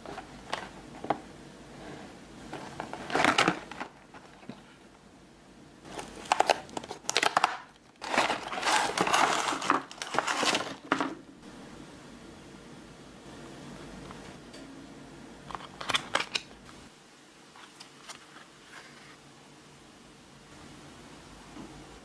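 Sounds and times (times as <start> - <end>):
cardboard box being torn open: 6.0 - 10.8.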